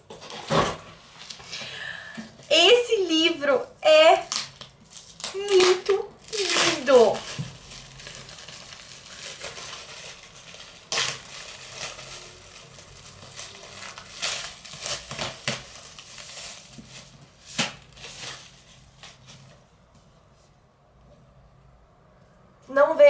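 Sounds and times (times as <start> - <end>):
packaging crinkling and tearing: 4.0 - 19.6.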